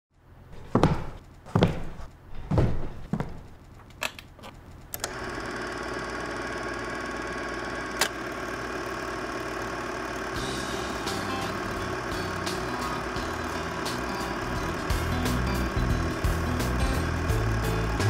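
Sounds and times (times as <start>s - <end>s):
heavy thumps: 0.6s - 3.6s
film projector whirring and clattering: 3.4s - 18.0s
projector switch click: 5.0s - 5.2s, 7.9s - 8.2s.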